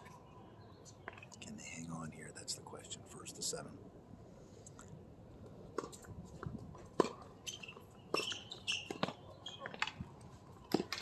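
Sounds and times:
tennis balls struck by rackets: 5.7 - 10.0, 10.7 - 11.0.

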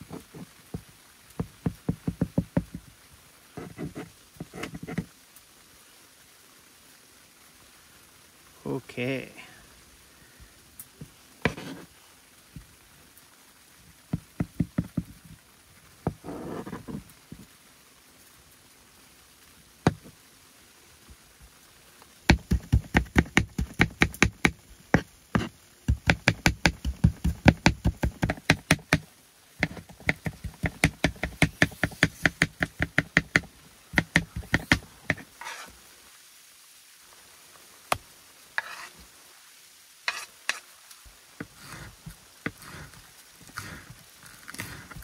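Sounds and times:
knife chopping on cutting board: 25.4 - 29.0, 29.6 - 35.2.

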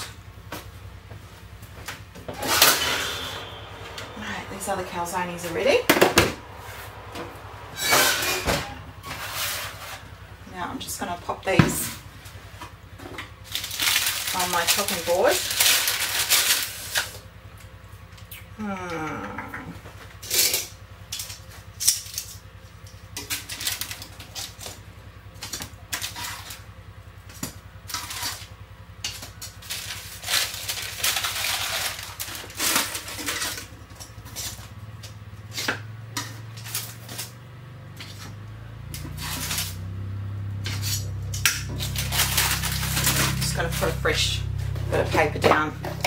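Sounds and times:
low hum: 0.0 - 46.0
baking paper rustling: 7.8 - 12.6, 13.4 - 17.3, 29.4 - 35.1, 40.6 - 45.5.

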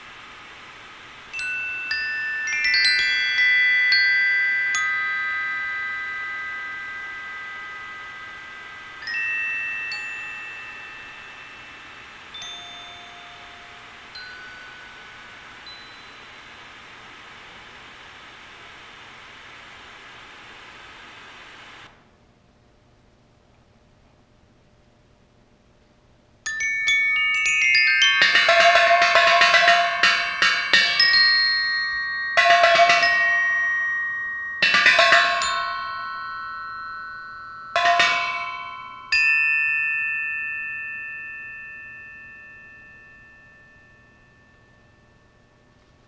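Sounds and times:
glockenspiel notes and chords: 1.3 - 16.4, 26.5 - 46.0.

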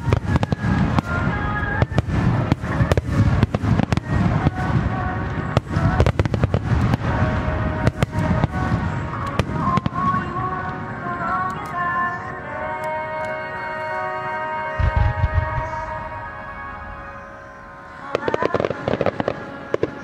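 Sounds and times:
fireworks bursting: 0.0 - 12.4, 14.7 - 20.0
music playing: 0.0 - 20.0
low rumble: 14.8 - 17.7.

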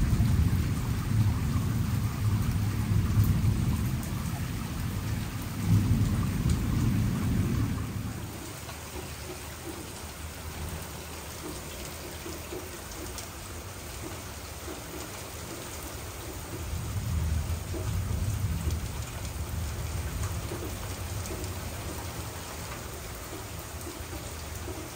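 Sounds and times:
thunder rumbling: 0.0 - 9.0, 16.6 - 22.0
steady rain: 0.0 - 24.9.

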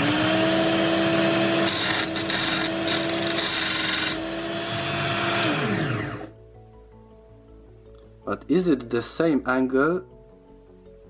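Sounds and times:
drill bit grinding: 0.0 - 6.3
motor hum: 0.0 - 6.3
motor spinning down: 1.7 - 6.3.

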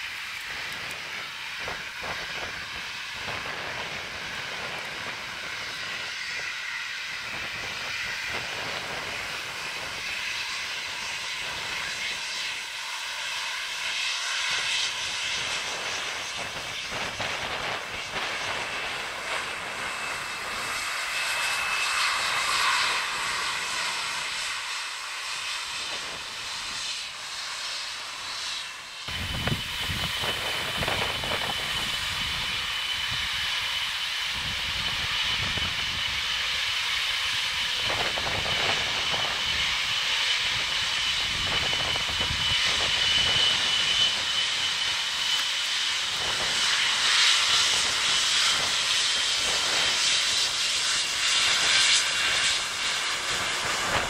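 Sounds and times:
deep jet engine rumble: 0.0 - 54.0
jet engines whining: 0.0 - 54.0.

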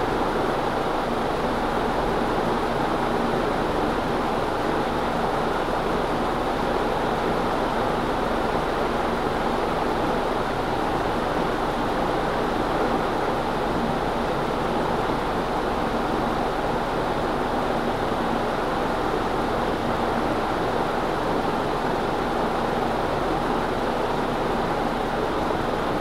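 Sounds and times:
ceiling fan air rush: 0.0 - 26.0.

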